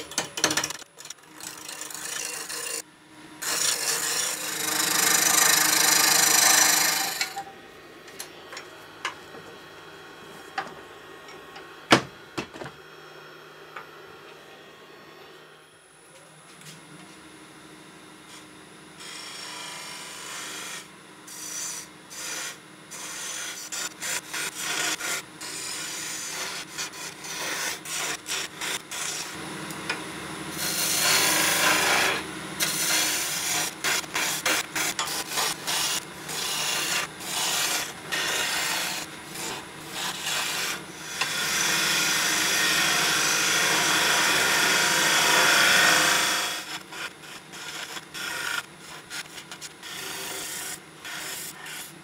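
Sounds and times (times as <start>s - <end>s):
wood lathe turning tool cutting: 0.0s - 2.8s, 3.4s - 7.4s, 19.0s - 51.9s.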